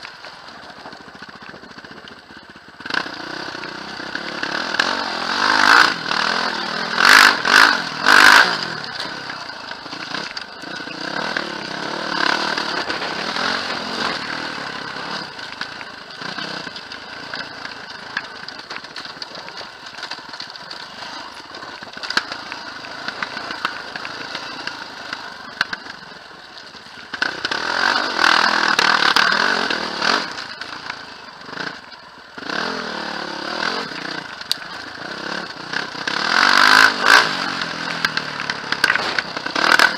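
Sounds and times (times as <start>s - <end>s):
quad bike engine revving: 0.5s - 39.9s
clatter from bumpy ride: 8.6s - 39.9s.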